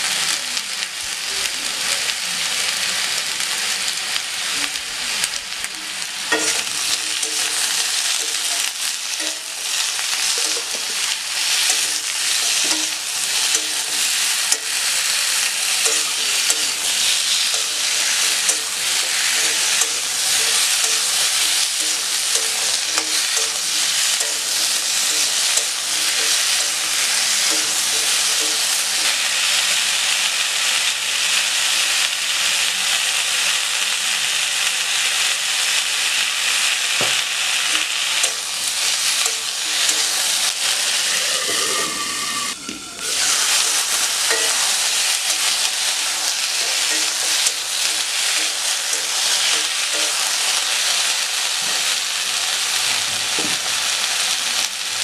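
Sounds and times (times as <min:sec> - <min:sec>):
potatoes sizzling in oil: 0:00.0 - 0:55.0
metal spatula scraping a wok: 0:06.3 - 0:29.6, 0:38.2 - 0:50.6.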